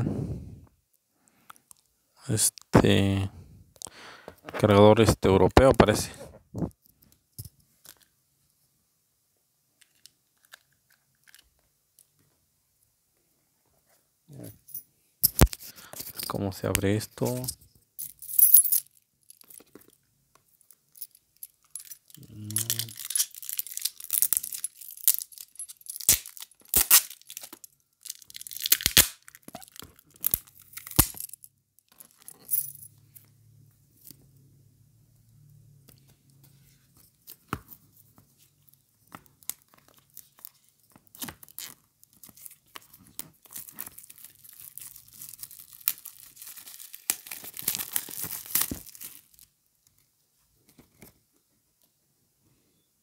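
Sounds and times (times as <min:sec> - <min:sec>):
plastic shrink-wrap crinkling: 0:21.9 - 0:31.2, 0:38.6 - 0:50.0.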